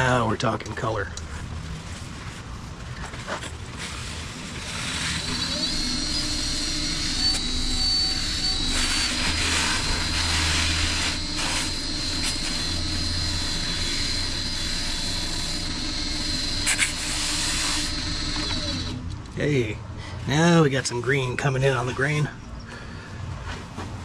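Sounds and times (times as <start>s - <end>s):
rag rubbing spinning wood: 4.0s - 19.0s
wood lathe motor whine: 4.6s - 19.2s.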